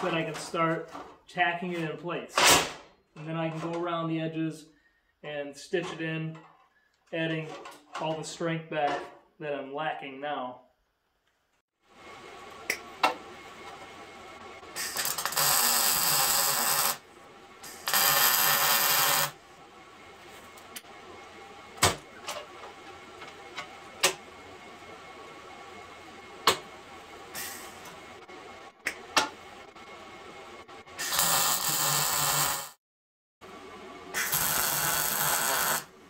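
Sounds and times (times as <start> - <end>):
welding arc noise: 14.8 - 17.0, 17.6 - 19.4, 31.0 - 32.8, 34.1 - 36.0.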